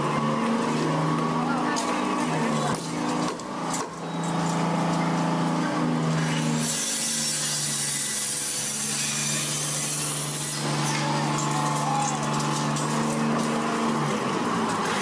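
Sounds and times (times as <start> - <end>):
diesel engine running: 0.0 - 6.5, 10.6 - 15.0.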